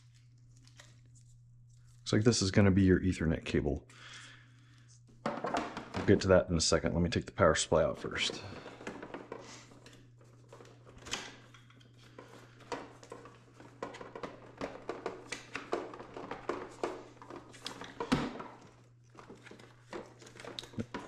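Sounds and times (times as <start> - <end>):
cardboard packaging rustling: 7.9 - 21.0.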